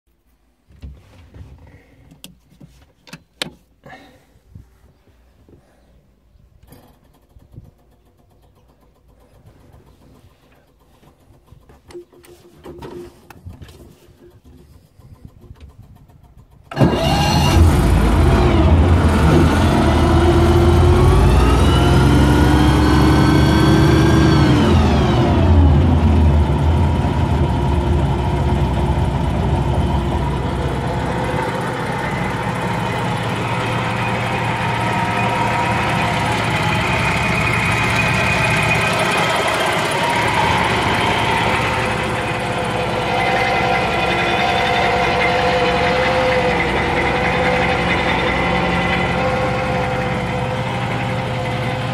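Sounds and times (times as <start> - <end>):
engine starting and revving: 14.3 - 51.9.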